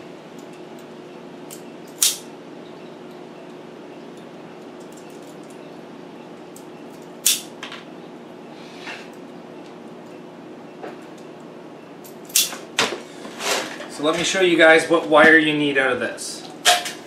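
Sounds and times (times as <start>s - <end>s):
steady low hum: 0.0s - 17.0s
wire cutter snipping wire: 1.5s - 2.2s, 7.2s - 7.5s, 12.0s - 12.6s.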